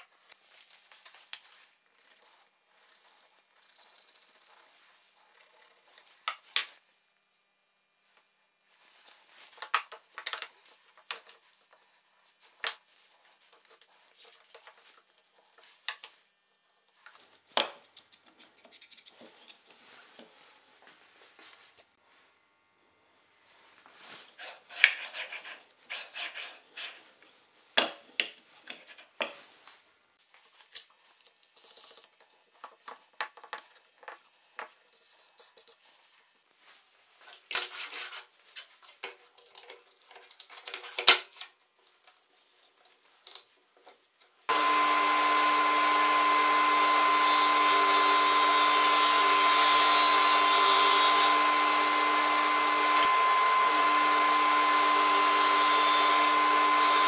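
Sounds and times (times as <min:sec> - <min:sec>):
table saw motor humming: 0:44.5 - 0:57.0.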